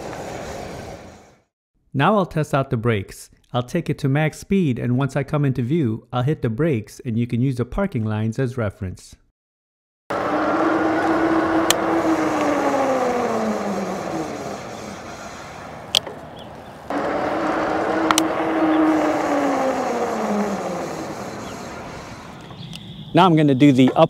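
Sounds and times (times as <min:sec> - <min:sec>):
road noise: 0:00.0 - 0:01.4, 0:10.1 - 0:24.0
electric bike motor and tyre whine: 0:00.0 - 0:01.5, 0:10.1 - 0:23.2
sharp clicks: 0:11.6 - 0:12.6, 0:15.9 - 0:16.2, 0:18.0 - 0:18.4.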